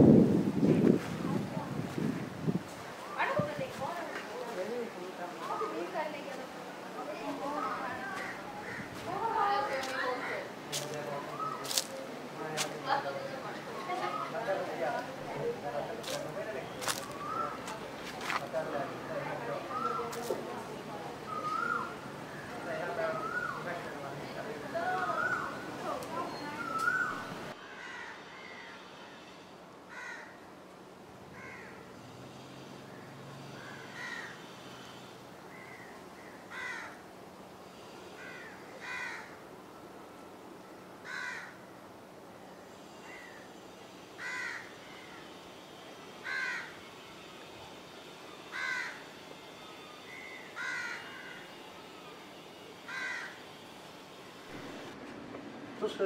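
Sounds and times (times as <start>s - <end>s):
fainter crow calls: 7.5s - 12.0s, 26.2s - 30.5s, 31.3s - 39.5s, 41.0s - 41.7s, 42.5s - 54.4s
crow cawing: 7.6s - 12.0s, 26.6s - 28.9s, 29.9s - 30.4s, 31.3s - 31.9s, 32.9s - 37.0s, 37.8s - 39.4s, 41.0s - 41.6s, 44.2s - 45.4s, 46.2s - 46.8s, 48.5s - 49.2s, 50.1s - 51.6s, 52.9s - 53.5s.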